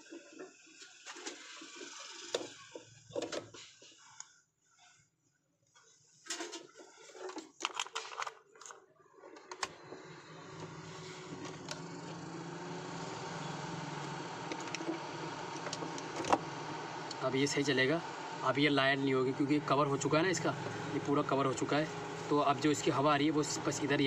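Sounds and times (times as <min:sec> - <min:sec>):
heater fan motor whirring: 0:09.7 - 0:24.0.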